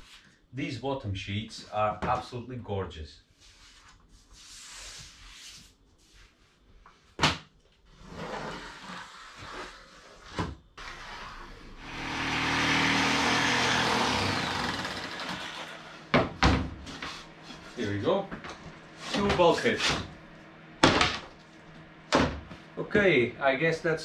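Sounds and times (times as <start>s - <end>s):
power saw cutting plywood: 10.8s - 16.1s.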